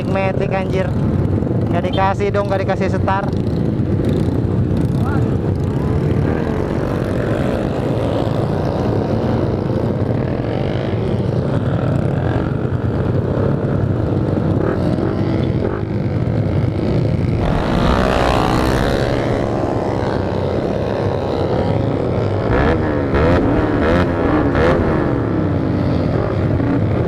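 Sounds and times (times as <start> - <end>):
many motorcycle engines running: 0.0 - 27.0
nearby motorcycle revving hard: 5.7 - 27.0.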